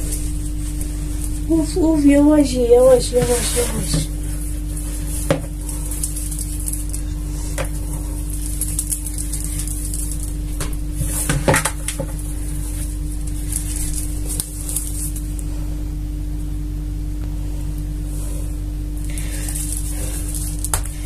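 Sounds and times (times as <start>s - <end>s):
hands working dough in bowl: 0.0s - 15.5s
steady low hum: 0.0s - 21.0s.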